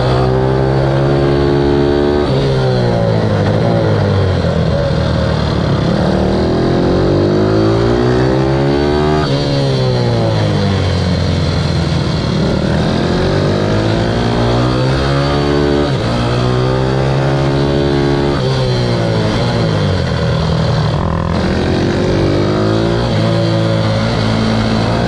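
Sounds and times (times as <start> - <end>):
motorbike engine revving: 0.0 - 25.0.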